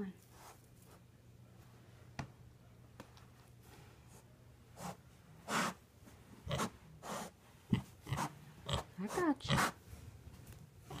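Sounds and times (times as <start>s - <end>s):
pig snorting: 6.4s - 9.8s.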